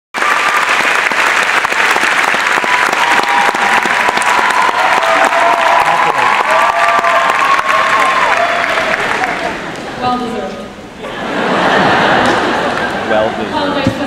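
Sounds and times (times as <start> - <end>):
large audience clapping: 0.1 - 10.0, 11.9 - 13.1
cheers or whistles: 2.6 - 9.0.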